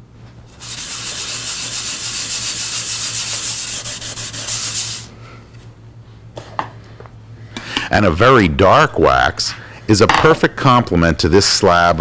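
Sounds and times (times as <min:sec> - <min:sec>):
steel wool scrubbing wood: 0:00.5 - 0:05.1.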